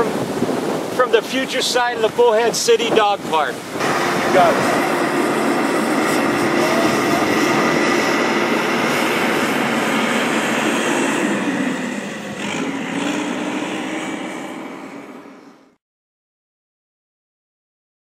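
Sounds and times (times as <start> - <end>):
diesel engine running: 3.8 - 15.8.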